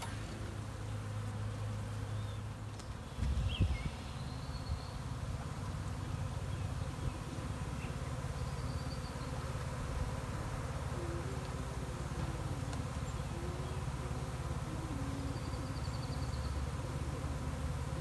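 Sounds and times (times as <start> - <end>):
honeybee swarm buzzing: 0.0 - 18.0.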